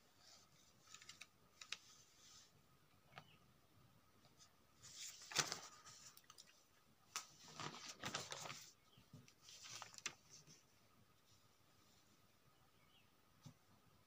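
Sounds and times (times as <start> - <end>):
paper pages rustling: 0.2 - 2.5, 4.8 - 10.7.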